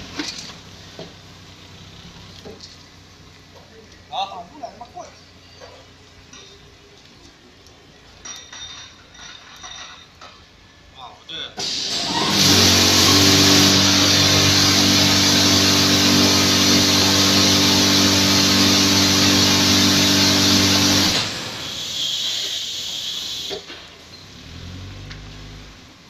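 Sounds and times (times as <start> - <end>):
high-pressure water spray hiss: 11.6 - 24.1
steady motor hum: 12.0 - 21.7.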